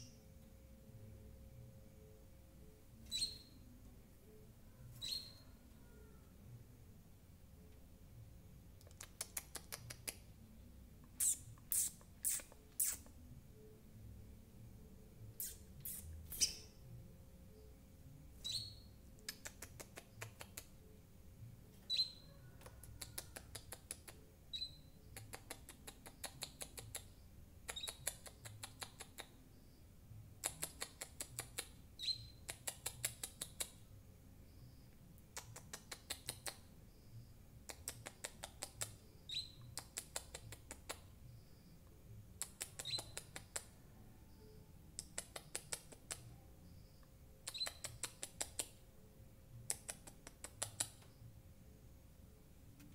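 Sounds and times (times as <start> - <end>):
bird sharp chirps: 3.1 - 3.6, 4.8 - 6.0, 11.2 - 13.1, 15.4 - 16.8, 18.4 - 19.5, 21.9 - 23.1, 24.5 - 25.3, 32.0 - 33.2, 38.8 - 40.2, 42.4 - 43.4, 47.5 - 48.6.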